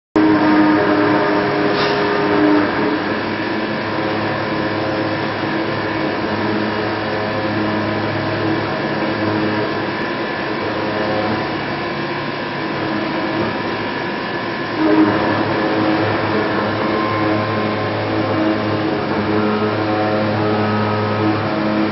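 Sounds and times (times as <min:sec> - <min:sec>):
milling machine cutting metal: 0:00.2 - 0:21.9.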